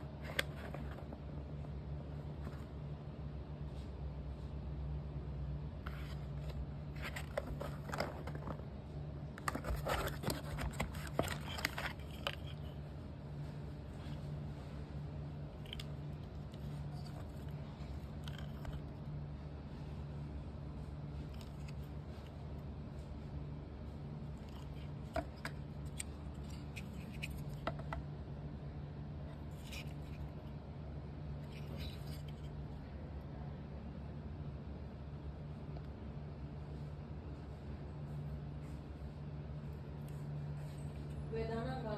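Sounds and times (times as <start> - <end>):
steady low hum: 0.0 - 41.9
cardboard scrapes and clicks: 5.8 - 8.7, 9.3 - 12.8, 24.4 - 28.0.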